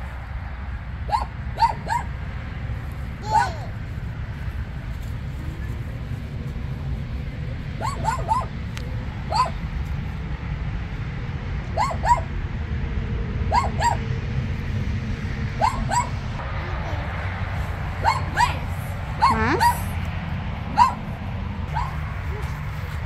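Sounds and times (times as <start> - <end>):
small dog yipping: 1.1 - 2.1, 3.2 - 3.6, 7.8 - 8.5, 9.3 - 9.6, 11.8 - 12.3, 13.5 - 14.0, 15.6 - 16.1, 18.0 - 20.0, 20.7 - 21.1, 21.7 - 22.6.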